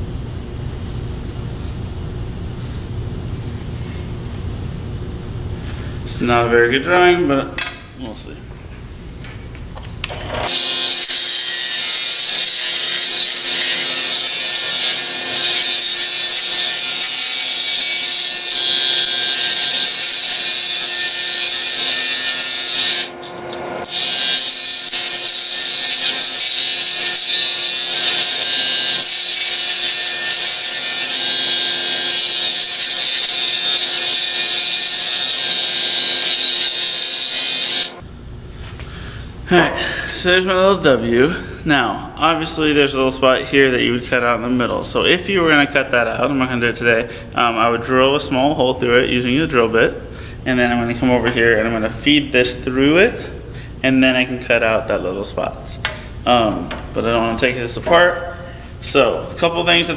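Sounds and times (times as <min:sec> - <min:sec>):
scroll saw cutting plywood: 0:10.1 - 0:38.0.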